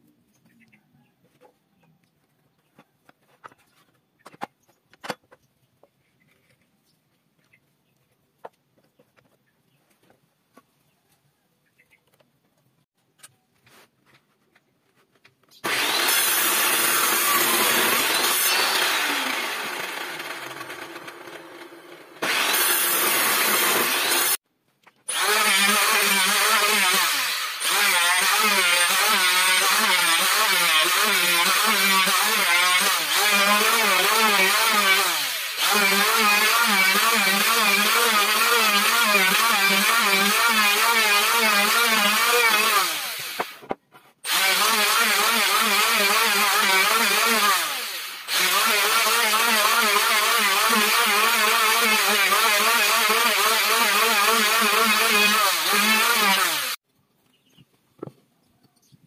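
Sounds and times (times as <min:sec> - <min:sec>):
electric planer cutting wood: 0:15.6 - 0:24.4, 0:25.1 - 0:56.8.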